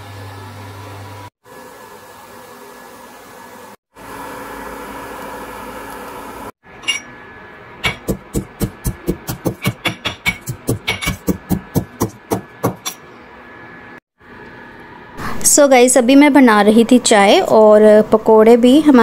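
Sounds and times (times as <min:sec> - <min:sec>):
kitchen appliance fan hum: 0:00.0 - 0:19.0
sharp knocks on kitchen surface: 0:07.8 - 0:13.0.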